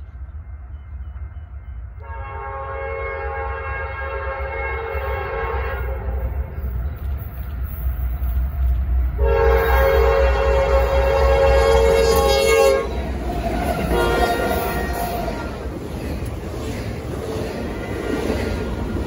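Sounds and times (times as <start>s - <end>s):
locomotive air horn blast: 2.0s - 6.3s, 9.2s - 13.0s, 13.8s - 15.3s
diesel engines rumbling: 5.0s - 19.0s.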